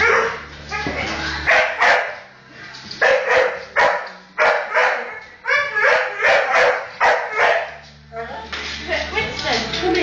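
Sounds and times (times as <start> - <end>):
dog barking: 1.5 - 2.2, 3.0 - 7.8
dog yelping: 3.0 - 7.8.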